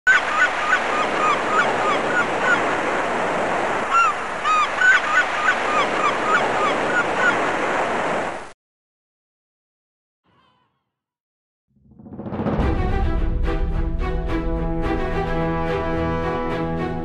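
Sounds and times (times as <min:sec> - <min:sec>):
gulls squawking: 0:00.1 - 0:08.3.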